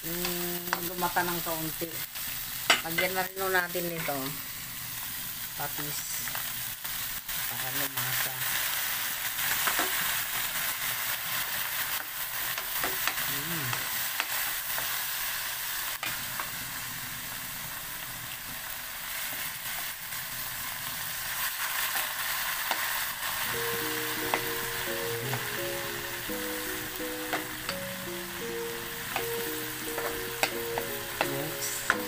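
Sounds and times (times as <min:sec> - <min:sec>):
food sizzling in hot oil: 0:00.0 - 0:32.0
music: 0:23.5 - 0:32.0.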